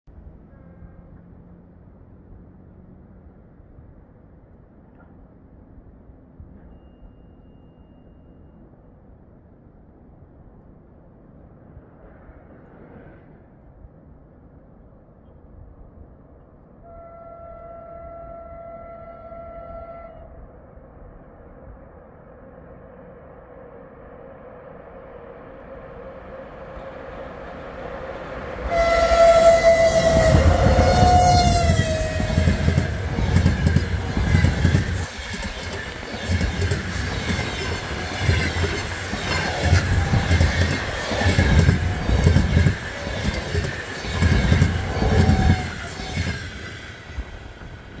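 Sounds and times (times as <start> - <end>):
locomotive horn: 0.4 - 1.3, 16.8 - 20.4, 28.6 - 34.7, 44.8 - 46.1
train rumble: 16.8 - 48.0.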